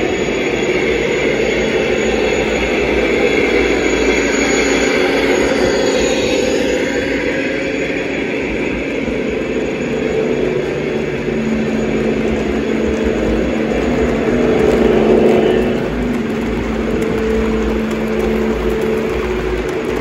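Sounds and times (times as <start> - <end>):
model locomotive engine drone: 0.0 - 20.0
model wheels rumbling on track: 10.2 - 20.0.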